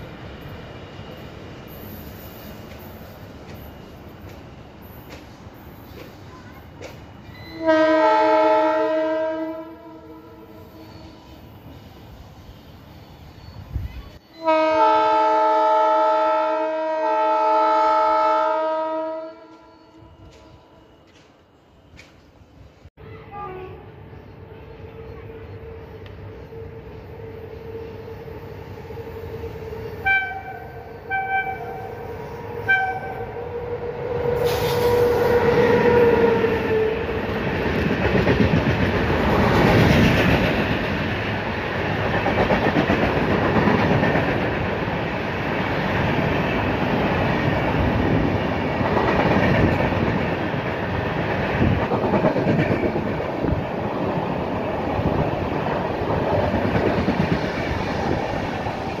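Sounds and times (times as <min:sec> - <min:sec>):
train passing at speed: 0:00.0 - 0:59.0
train horn blasts: 0:07.4 - 0:11.3, 0:14.3 - 0:21.0, 0:23.0 - 0:23.9, 0:29.9 - 0:37.1.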